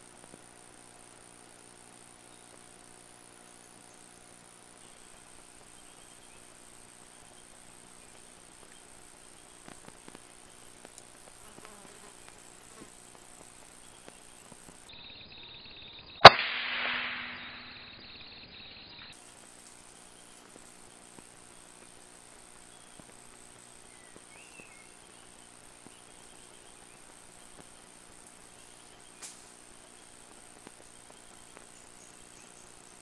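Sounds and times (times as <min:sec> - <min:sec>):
rifle shot: 0:16.2 - 0:17.9.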